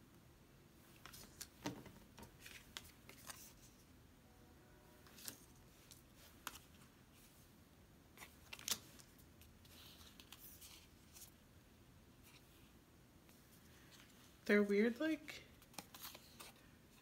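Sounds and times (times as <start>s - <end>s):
cards sliding and rustling: 0.9s - 3.9s, 5.0s - 7.3s, 8.2s - 11.4s, 15.6s - 17.0s.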